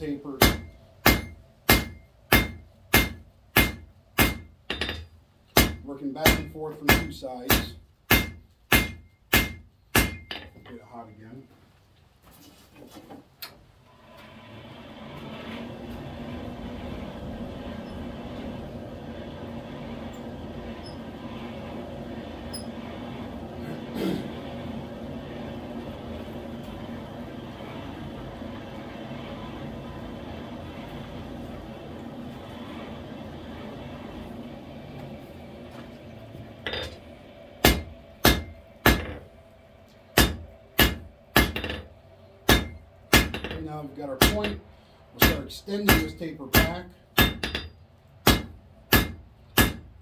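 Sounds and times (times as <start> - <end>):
hammer striking hot steel on anvil: 0.4 - 10.7, 37.6 - 39.2, 40.2 - 41.9, 42.5 - 44.6, 45.2 - 49.9
forge blower humming: 13.8 - 50.0.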